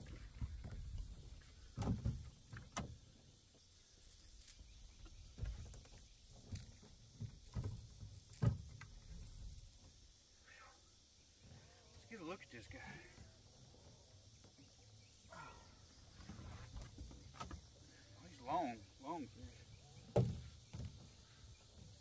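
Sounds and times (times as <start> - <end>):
knocks and thumps in a boat: 0.0 - 3.4, 4.8 - 10.0, 12.7 - 18.6, 19.5 - 22.0.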